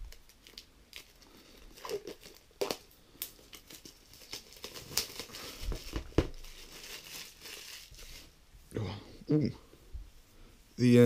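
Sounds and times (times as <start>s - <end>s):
plastic shrink-wrap crinkling: 0.0s - 8.4s.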